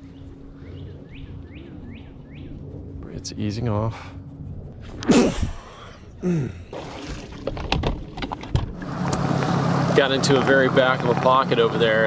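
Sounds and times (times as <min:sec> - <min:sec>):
boat motor humming: 0:06.3 - 0:12.0
clicks and knocks of handling: 0:07.5 - 0:08.7.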